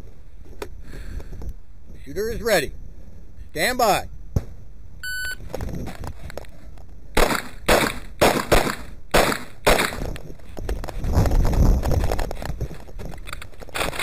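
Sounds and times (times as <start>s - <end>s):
low rumbling rustle of movement: 0.0s - 3.5s, 4.1s - 7.2s, 9.9s - 14.0s
pistol shots: 7.2s - 10.0s.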